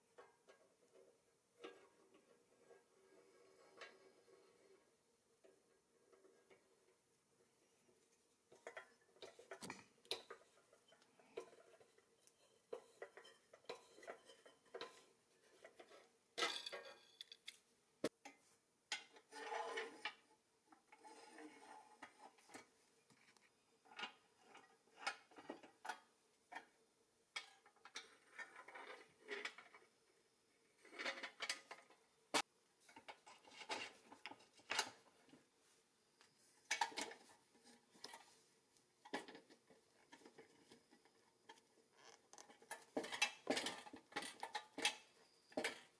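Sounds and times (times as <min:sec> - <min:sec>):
metal parts clicking and clinking: 0:08.6 - 0:17.7.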